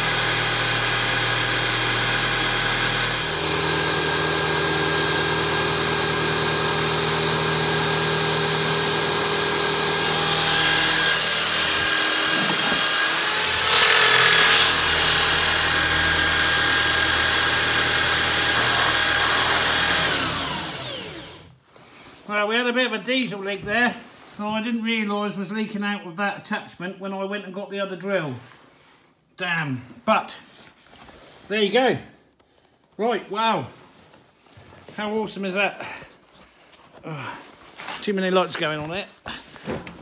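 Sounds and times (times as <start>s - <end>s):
electric drill whirring: 0.0s - 21.5s.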